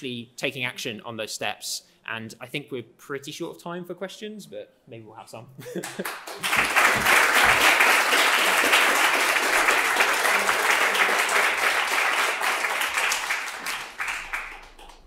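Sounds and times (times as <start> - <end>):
audience applause: 5.8 - 15.0.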